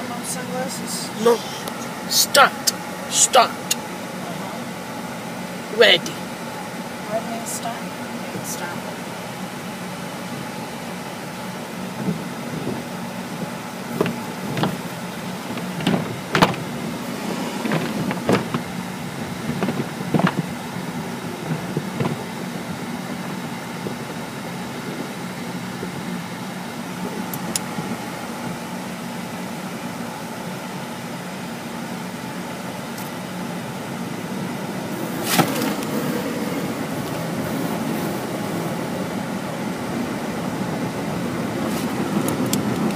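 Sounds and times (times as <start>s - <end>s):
car wash machinery hum: 0.0s - 42.9s
wash strips slapping on car: 34.9s - 36.2s.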